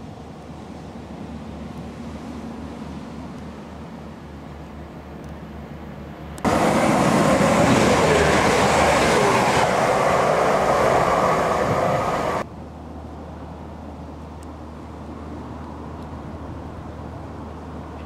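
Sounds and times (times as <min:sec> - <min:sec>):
faint train whine: 0:00.0 - 0:18.0
train wheels rushing on rail: 0:06.4 - 0:12.5.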